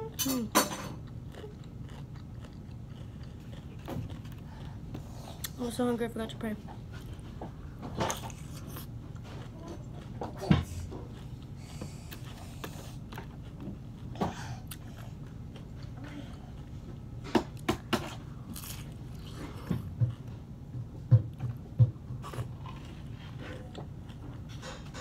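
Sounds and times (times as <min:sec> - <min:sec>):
crunchy chewing: 0:00.9 - 0:05.6, 0:06.9 - 0:20.4.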